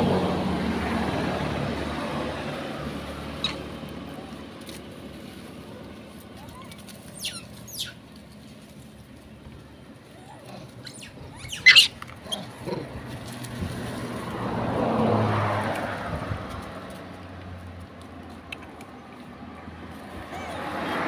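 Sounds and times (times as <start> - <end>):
vehicle passing: 0.0 - 21.0
monkey squealing: 3.4 - 3.8, 6.4 - 8.0, 10.2 - 12.6.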